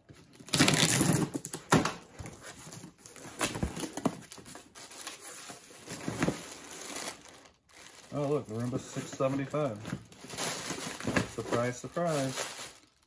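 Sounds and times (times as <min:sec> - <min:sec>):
plastic bags crinkling: 0:00.2 - 0:13.0
tape and plastic wrap ripping: 0:00.3 - 0:02.0, 0:10.1 - 0:13.0.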